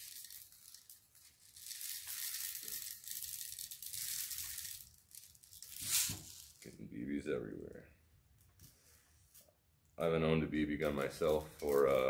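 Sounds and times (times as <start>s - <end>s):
steel shot pouring from bottle: 5.6s - 6.6s.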